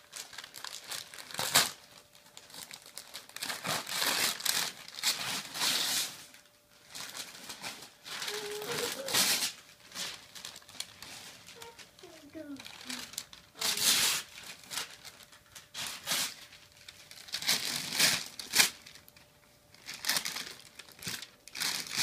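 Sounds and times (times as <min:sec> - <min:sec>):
wrapping paper crinkling and tearing: 0:00.0 - 0:22.0.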